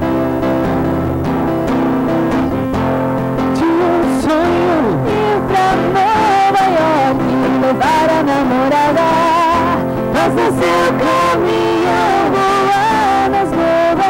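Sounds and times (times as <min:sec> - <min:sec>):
strummed acoustic guitar: 0:00.0 - 0:14.0
woman singing: 0:03.5 - 0:14.0.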